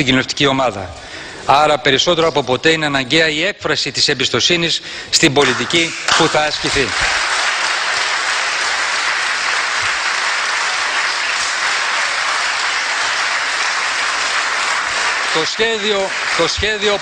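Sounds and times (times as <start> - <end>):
large audience applauding: 5.4 - 17.0.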